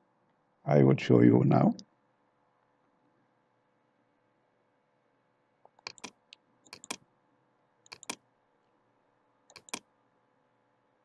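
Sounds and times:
computer mouse clicking: 0:05.7 - 0:07.0, 0:07.9 - 0:08.2, 0:09.5 - 0:09.9.

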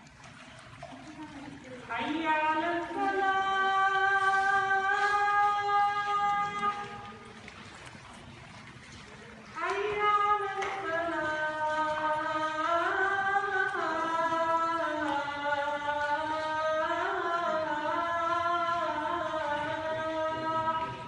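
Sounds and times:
man chanting call to prayer: 0:01.9 - 0:07.3, 0:09.6 - 0:21.0.

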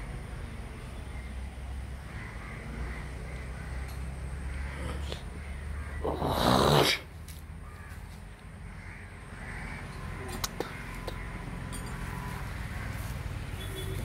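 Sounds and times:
crow cawing: 0:02.0 - 0:06.8, 0:07.6 - 0:13.2.

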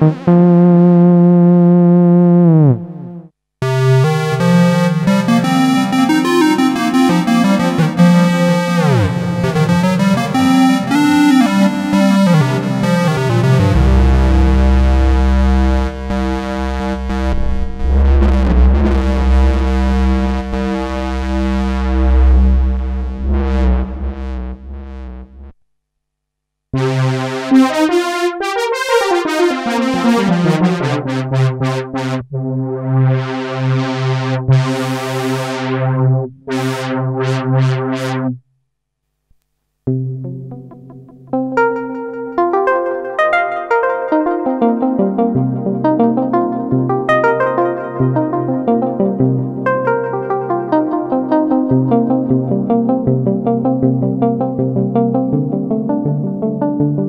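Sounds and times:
low synthesizer note with filter sweep: 0:00.0 - 0:25.6
synthesizer run of short notes: 0:00.3 - 0:25.5.

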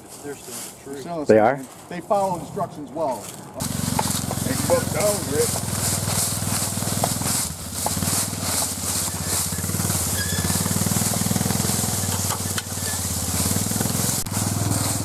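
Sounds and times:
plastic sled dragging over leaves: 0:03.2 - 0:15.0
atv engine running: 0:03.6 - 0:15.0.

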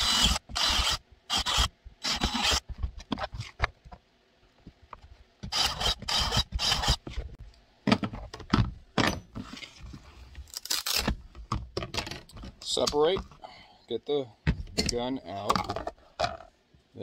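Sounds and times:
drill grinding through plastic: 0:00.0 - 0:02.7, 0:05.5 - 0:07.1.

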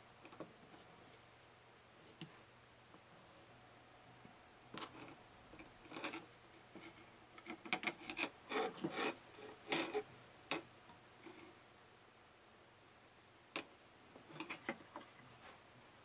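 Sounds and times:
plastic plugs rubbing and clicking: 0:04.7 - 0:10.6, 0:13.6 - 0:15.4.

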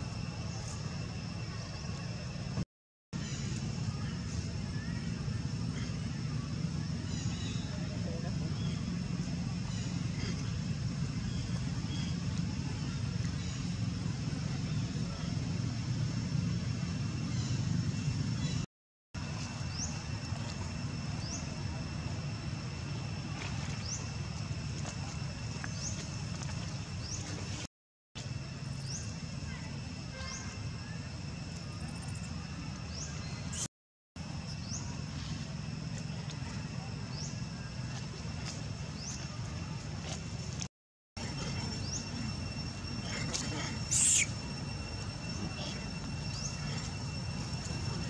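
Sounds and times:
faint high whine: 0:00.0 - 0:02.6, 0:03.2 - 0:48.0
low mechanical rumble: 0:00.0 - 0:02.6, 0:03.2 - 0:48.0
thin steady high tones: 0:41.2 - 0:48.0.

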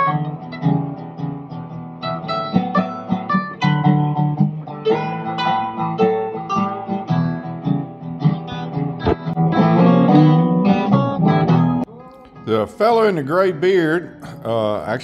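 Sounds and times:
acoustic guitars playing: 0:00.0 - 0:15.0.

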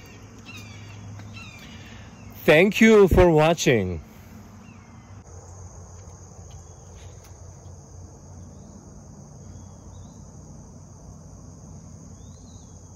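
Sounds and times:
insect chorus drone: 0:00.0 - 0:12.9.

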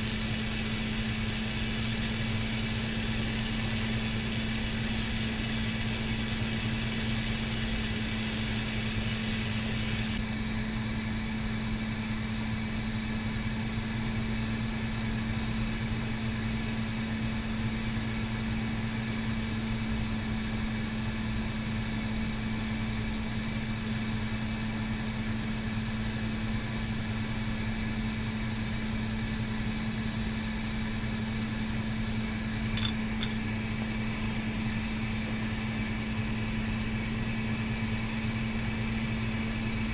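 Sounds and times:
bench torch hissing: 0:00.0 - 0:10.2, 0:32.6 - 0:39.9
low motor hum: 0:00.0 - 0:11.1.

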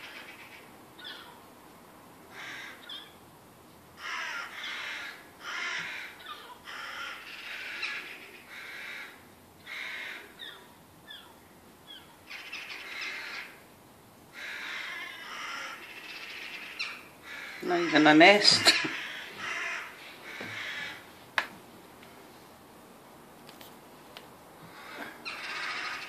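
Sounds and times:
crows cawing: 0:00.0 - 0:01.4, 0:02.3 - 0:03.2, 0:04.0 - 0:11.3, 0:11.9 - 0:13.6, 0:14.3 - 0:21.1, 0:24.7 - 0:26.0.

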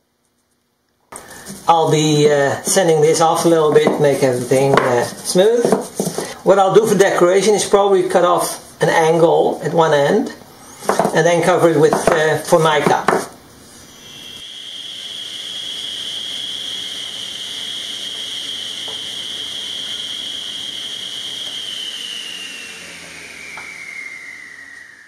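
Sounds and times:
table saw whining: 0:10.6 - 0:25.0.

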